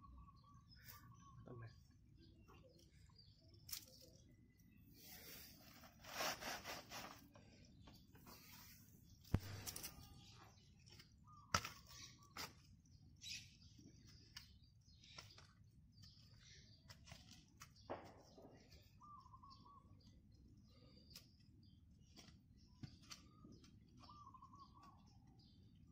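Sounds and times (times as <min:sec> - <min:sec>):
bird chirping: 0:00.0 - 0:05.8, 0:07.0 - 0:25.9.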